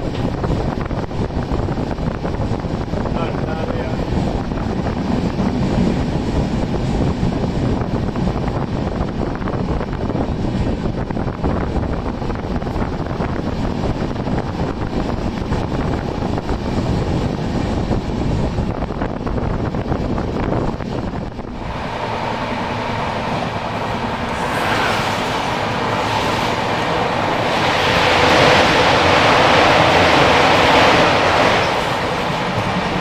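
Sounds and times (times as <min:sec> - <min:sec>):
wheels rumbling on rail: 0:00.0 - 0:33.0
wind rush: 0:00.0 - 0:33.0
passing train rushing hiss: 0:21.0 - 0:33.0.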